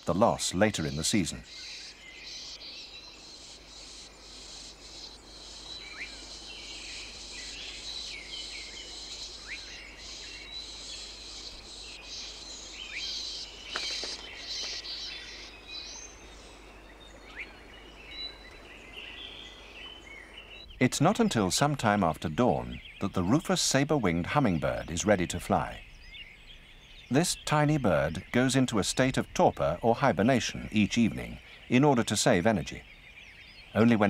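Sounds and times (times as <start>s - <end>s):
small birds chirping: 0.0s - 34.0s
high insect tone: 0.9s - 16.7s.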